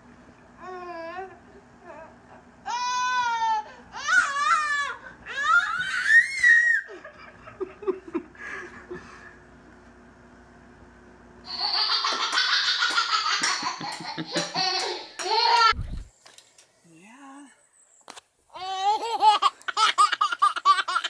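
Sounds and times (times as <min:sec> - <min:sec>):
hearty laughing: 0:06.9 - 0:09.4, 0:13.4 - 0:15.8.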